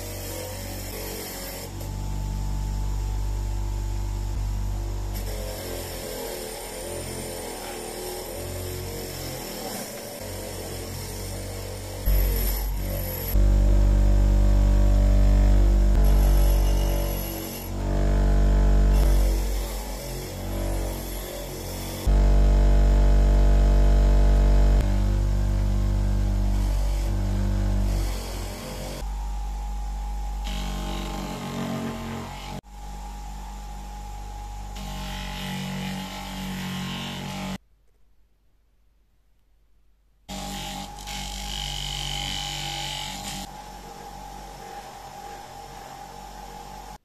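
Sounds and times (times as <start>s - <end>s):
bench grinder motor hum: 0.0s - 32.7s.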